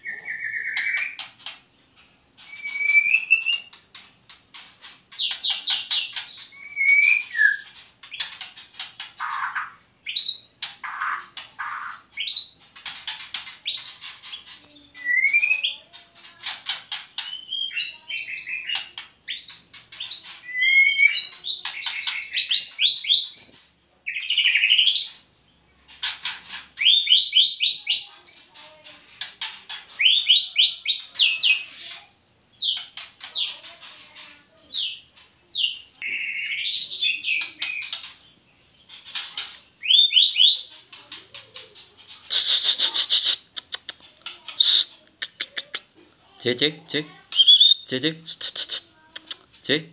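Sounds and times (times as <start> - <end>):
songbird singing varied song: 17.2 - 19.7, 34.7 - 38.9, 47.3 - 48.0.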